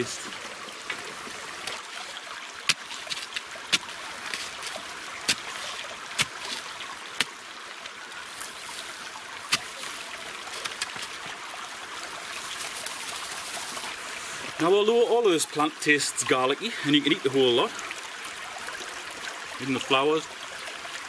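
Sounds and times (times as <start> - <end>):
stream running over stones: 0.0 - 21.0
wooden stick knocking stones: 2.7 - 5.6, 9.5 - 11.3.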